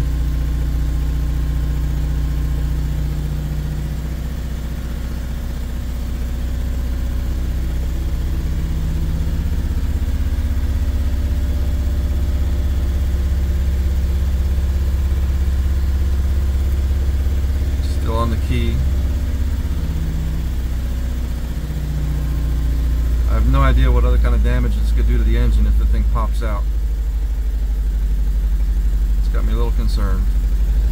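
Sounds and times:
diesel engine fast idle: 0:00.0 - 0:30.9.

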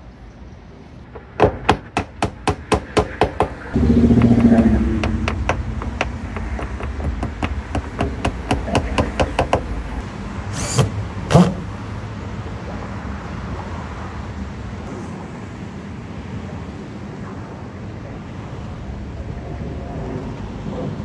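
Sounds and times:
low steady rumble: 0:00.0 - 0:21.0
hammer tapping nails into wood: 0:01.4 - 0:03.6, 0:04.2 - 0:09.7.

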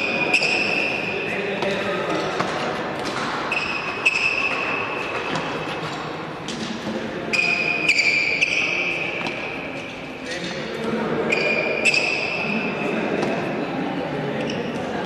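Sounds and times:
shoes squeaking on court: 0:00.0 - 0:10.6, 0:11.2 - 0:13.5, 0:14.4 - 0:14.9
racket hitting shuttlecock: 0:01.6 - 0:09.7, 0:13.2 - 0:13.5.

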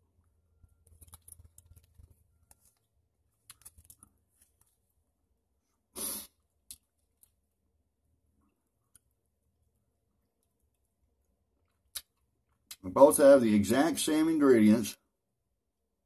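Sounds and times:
gum packaging crinkling: 0:00.6 - 0:05.0.

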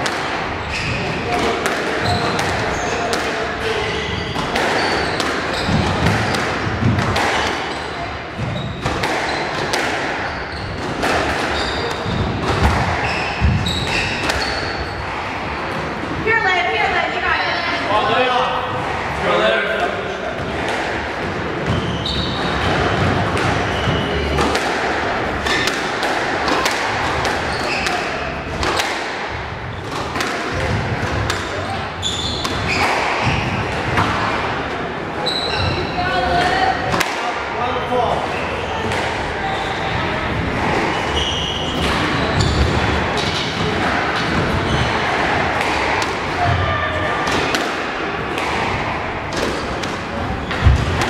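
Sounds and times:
squash ball smacks: 0:00.0 - 0:00.5, 0:01.3 - 0:03.4, 0:04.4 - 0:07.7, 0:08.4 - 0:14.6, 0:24.4 - 0:31.6
murmur of the hall: 0:00.0 - 0:51.0
shoes squeaking on hardwood floor: 0:00.5 - 0:15.4, 0:21.6 - 0:24.4, 0:26.5 - 0:28.4, 0:31.1 - 0:33.7, 0:35.2 - 0:36.6, 0:38.2 - 0:47.1.

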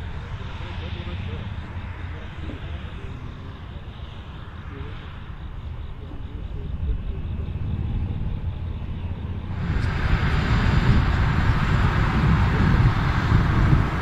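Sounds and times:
tractor diesel engine rumbling: 0:09.2 - 0:14.0.

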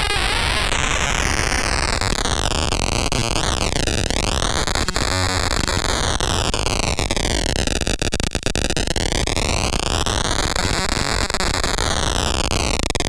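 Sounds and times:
harsh buzzy synthesizer tone: 0:00.0 - 0:06.1, 0:10.4 - 0:11.8.

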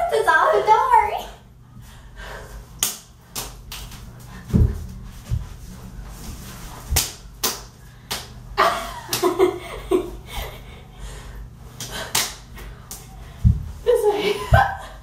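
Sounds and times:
hand claps and slaps: 0:02.8 - 0:04.0, 0:06.9 - 0:08.4, 0:09.1 - 0:09.4, 0:11.8 - 0:13.1.

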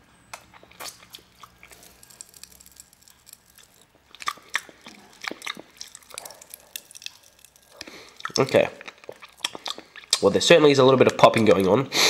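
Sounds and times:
lollipop sucking: 0:00.7 - 0:10.2
popping candy crackles: 0:00.7 - 0:10.3.

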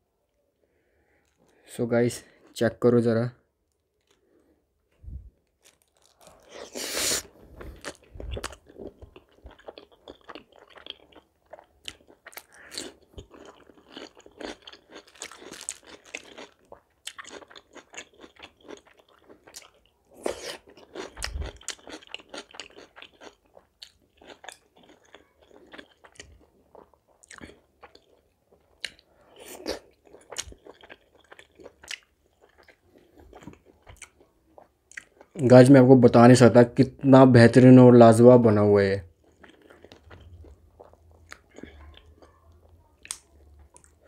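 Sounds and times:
person chewing food: 0:03.7 - 0:35.4, 0:39.1 - 0:44.0
wet mouth clicks and crunches: 0:28.8 - 0:32.8.

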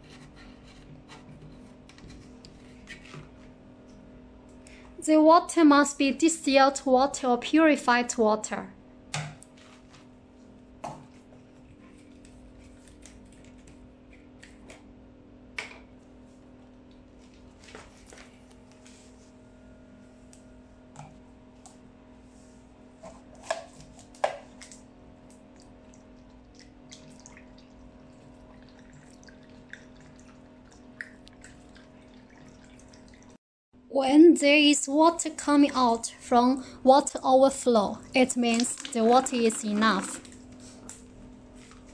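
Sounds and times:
water trickling: 0:25.5 - 0:33.4, 0:38.0 - 0:40.4.

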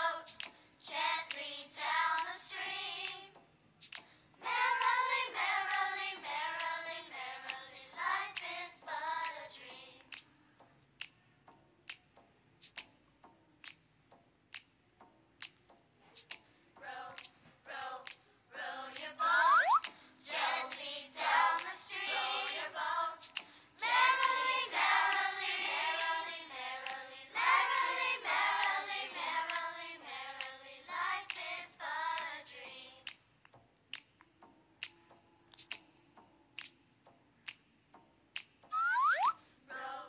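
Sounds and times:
voices singing a melody: 0:00.0 - 0:10.2, 0:16.7 - 0:33.2, 0:38.7 - 0:40.0
clicking ticking beat: 0:00.2 - 0:01.4, 0:02.0 - 0:02.4, 0:03.0 - 0:17.3, 0:18.0 - 0:18.2, 0:18.9 - 0:20.8, 0:21.4 - 0:30.6, 0:31.2 - 0:32.4, 0:33.0 - 0:39.4.

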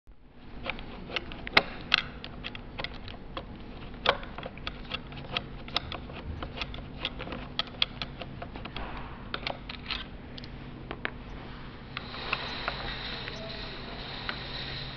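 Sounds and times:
faint hum: 0:00.1 - 0:14.9
screwdriver clicking on metal: 0:00.6 - 0:08.8.

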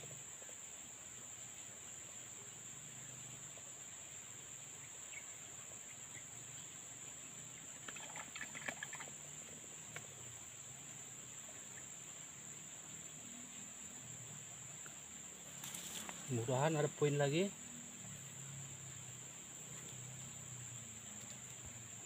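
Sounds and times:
high-pitched insect drone: 0:00.0 - 0:22.0
dry grass crackling rustles: 0:15.4 - 0:16.4.

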